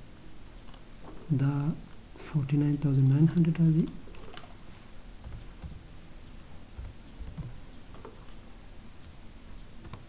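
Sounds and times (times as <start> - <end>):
keyboard keystrokes: 5.2 - 5.8, 6.8 - 8.4.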